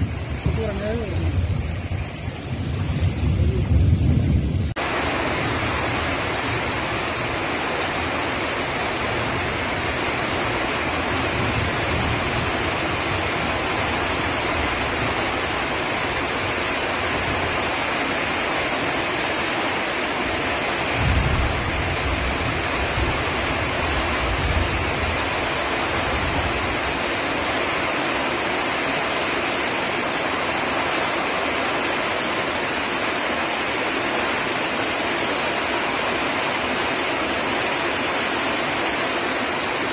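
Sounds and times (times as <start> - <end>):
wind buffeting microphone: 0.0 - 4.8
heavy rain pouring: 0.0 - 39.9.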